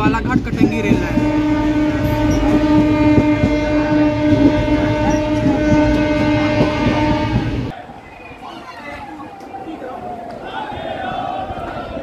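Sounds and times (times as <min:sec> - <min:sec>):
train running noise: 0:00.0 - 0:12.0
train horn blast: 0:00.6 - 0:07.7.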